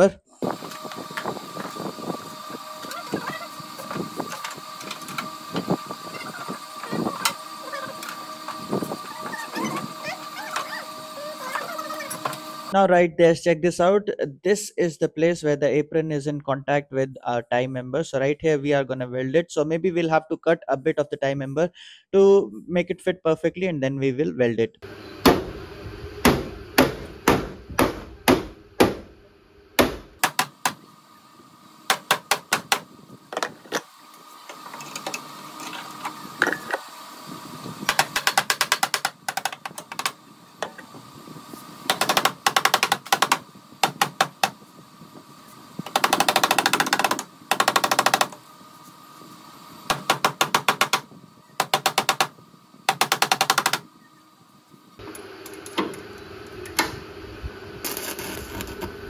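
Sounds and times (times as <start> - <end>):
welding arc crackling: 57.8 - 59.0.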